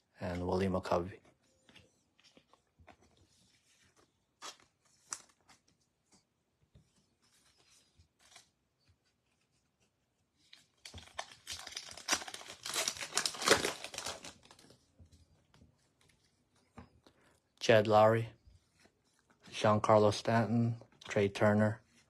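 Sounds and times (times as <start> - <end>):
wrapper tearing and crinkling: 10.8 - 14.7.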